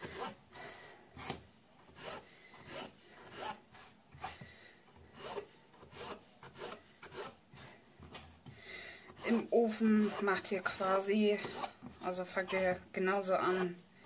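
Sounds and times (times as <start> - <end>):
knife slicing potato on board: 5.1 - 8.2, 9.1 - 12.8.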